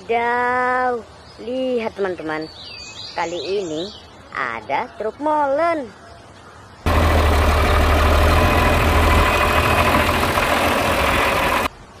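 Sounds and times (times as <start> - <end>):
diesel engine humming: 6.9 - 11.7.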